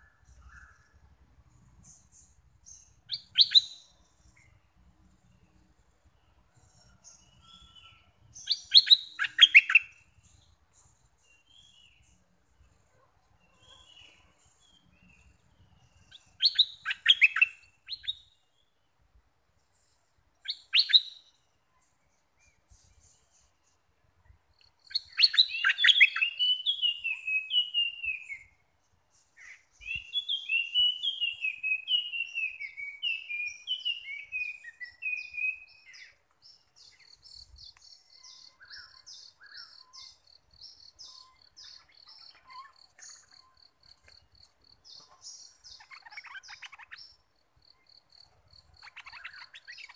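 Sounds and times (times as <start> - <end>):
bulbul song: 24.9 - 28.6, 29.2 - 47.4.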